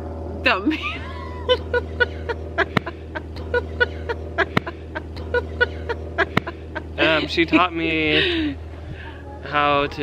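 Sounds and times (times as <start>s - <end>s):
man and woman laughing: 0.8s - 8.6s.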